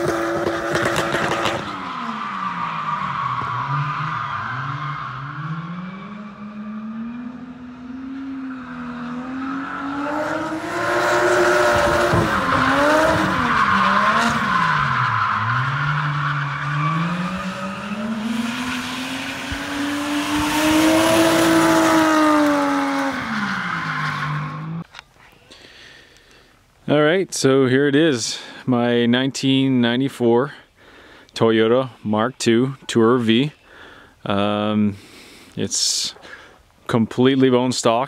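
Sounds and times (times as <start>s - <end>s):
car engine revving: 0.0s - 24.8s
tires squealing and skidding: 0.0s - 24.8s.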